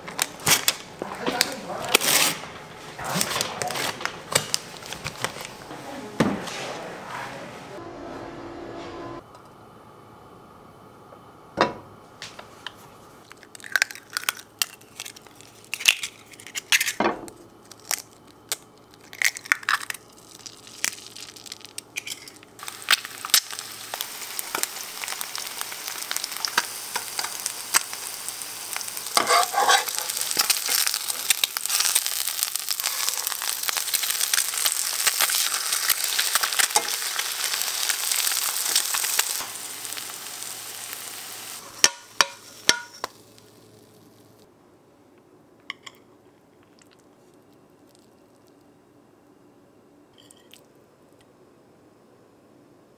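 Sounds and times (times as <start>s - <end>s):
eggs sizzling in oil: 17.7s - 44.5s.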